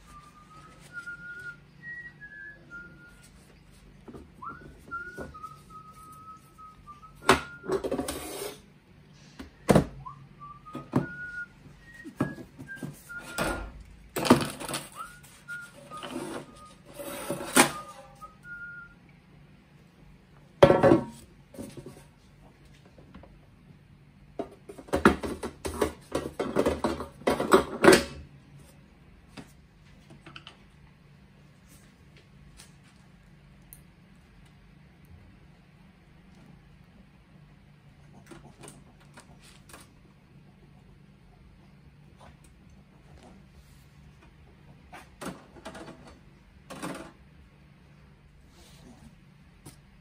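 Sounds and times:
person whistling a tune: 0.0s - 3.3s, 4.4s - 7.8s, 9.6s - 13.8s, 14.9s - 16.9s, 17.7s - 19.0s.

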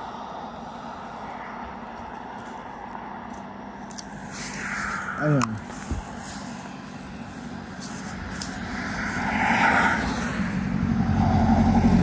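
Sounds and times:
motor vehicle passing: 4.0s - 12.0s.

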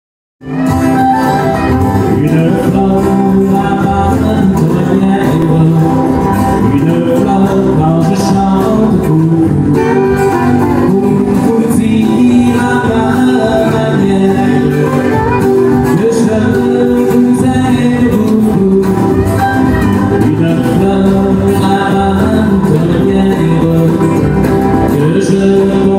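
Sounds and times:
acoustic guitars strumming: 0.4s - 25.9s
man singing: 2.0s - 25.9s.

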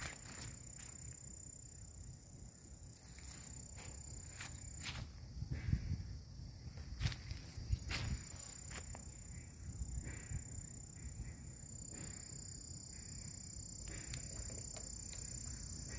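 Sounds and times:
constant high hiss: 0.0s - 15.9s
insects singing: 0.0s - 15.9s
wind rumble on microphone: 5.0s - 8.5s.

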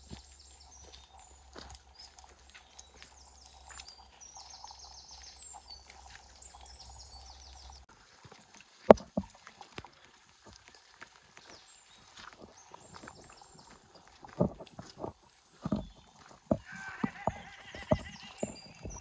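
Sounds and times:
small birds singing: 0.0s - 7.9s, 8.8s - 19.0s
sharp knocks near microphone: 16.5s - 19.0s.

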